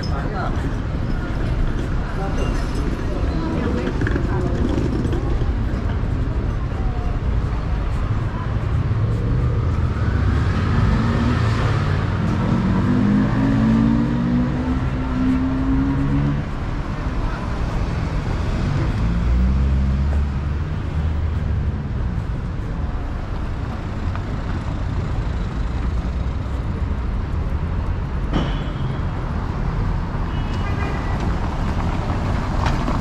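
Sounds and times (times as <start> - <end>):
road noise: 0.0 - 33.0.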